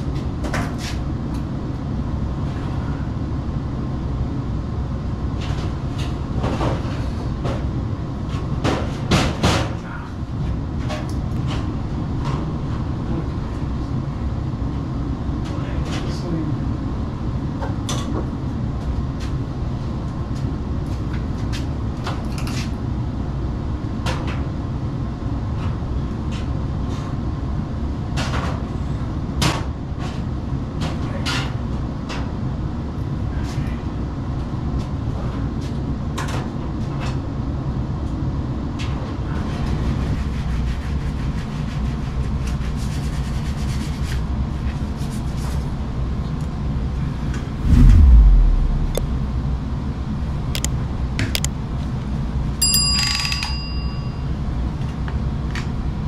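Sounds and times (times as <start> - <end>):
low mechanical rumble: 47.4 - 51.6.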